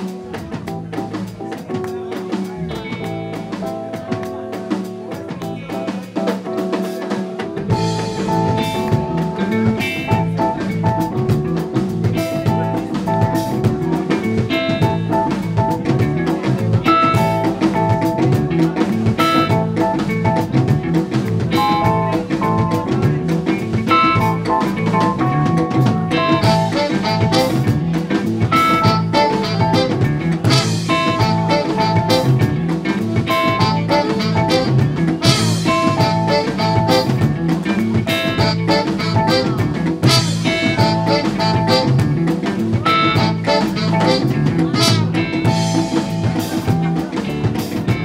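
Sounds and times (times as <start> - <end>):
jazz band playing: 0.0 - 48.0.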